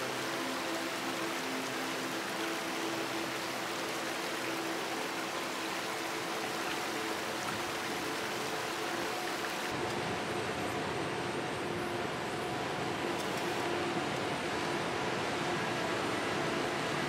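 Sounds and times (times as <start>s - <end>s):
stream rushing over stones: 0.0s - 9.8s.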